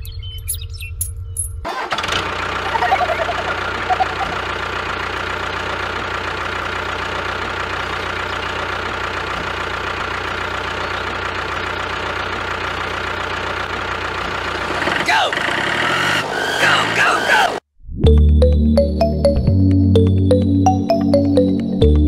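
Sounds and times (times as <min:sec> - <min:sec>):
tractor engine idling: 0:01.6 - 0:17.5.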